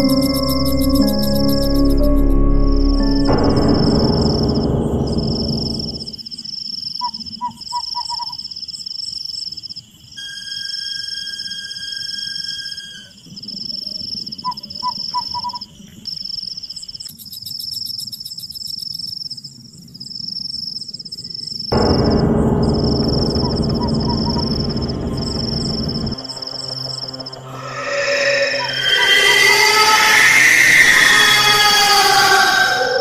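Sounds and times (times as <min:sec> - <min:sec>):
fast insect trill: 0:00.0 - 0:02.3, 0:10.2 - 0:19.4, 0:23.0 - 0:33.0
low rumble: 0:00.0 - 0:06.2, 0:21.8 - 0:32.2.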